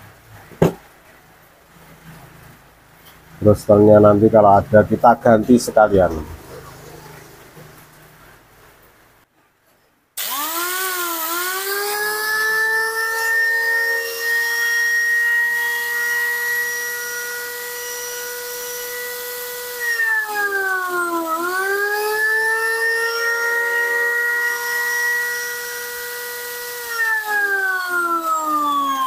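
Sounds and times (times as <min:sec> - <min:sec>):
angle grinder motor whining: 0:10.2 - 0:29.0.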